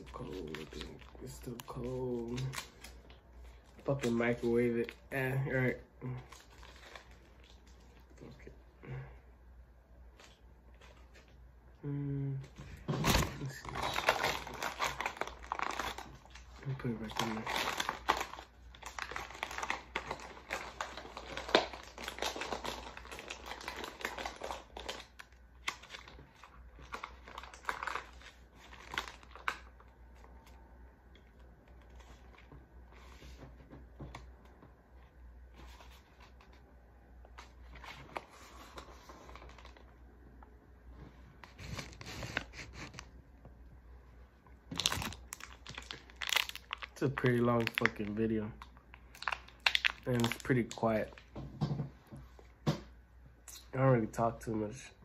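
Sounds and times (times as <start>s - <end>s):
packaging crinkling and rustling: 0.0s - 5.0s, 6.2s - 8.4s, 12.8s - 34.4s, 35.5s - 40.0s, 41.4s - 43.1s, 44.7s - 51.4s.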